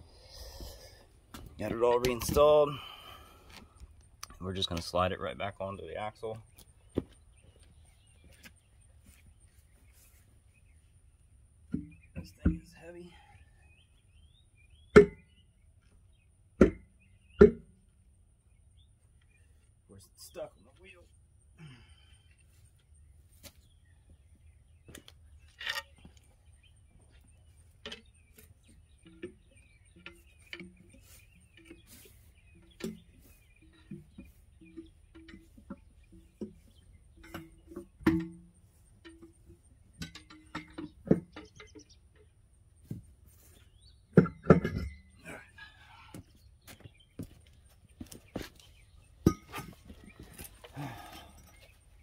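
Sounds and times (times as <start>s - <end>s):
metallic clinks and knocks: 27.6s - 42.4s, 48.6s - 52.0s.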